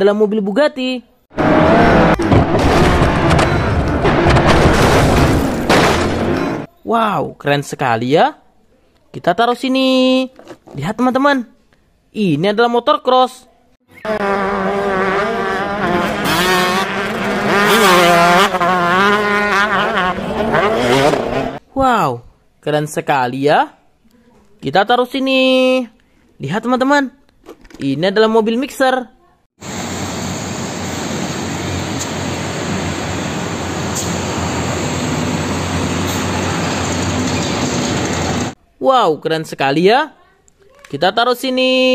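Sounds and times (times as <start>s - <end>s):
road traffic driving past: 1.3s - 4.5s, 14.0s - 21.6s, 29.6s - 38.6s
dirt bike engine revving: 1.3s - 6.7s, 13.9s - 21.6s
motorcycles driving past: 14.0s - 21.6s.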